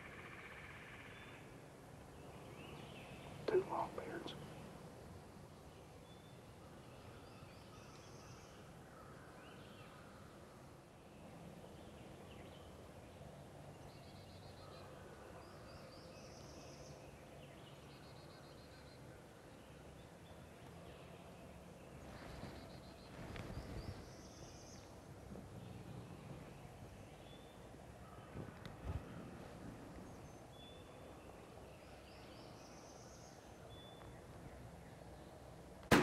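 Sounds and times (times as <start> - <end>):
songbirds singing: 0.0 - 35.8.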